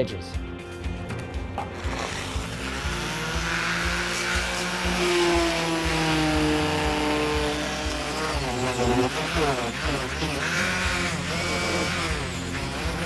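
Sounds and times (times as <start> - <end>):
orbital sander on wood: 1.6 - 13.0.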